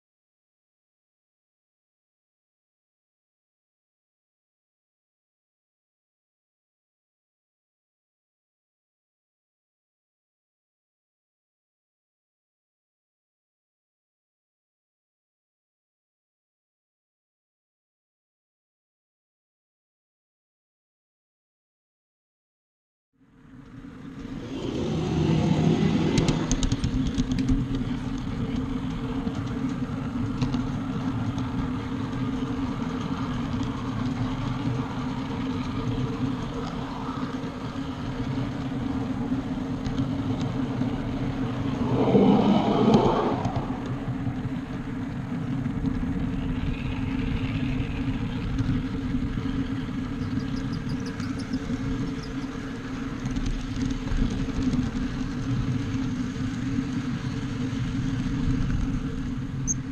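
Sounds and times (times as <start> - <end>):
miniature train on track: 23.4 - 59.9
brief burst of noise: 41.5 - 44.4.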